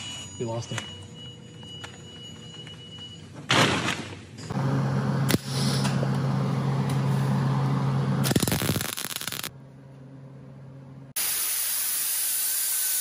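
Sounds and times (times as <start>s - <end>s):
welder buzzing and crackling: 8.2s - 9.5s, 11.2s - 13.0s.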